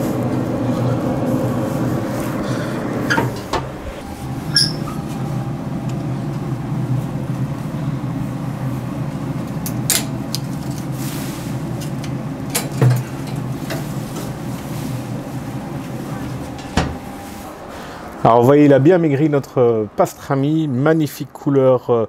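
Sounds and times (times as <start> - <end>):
grill fan whirring: 0.0 - 21.7.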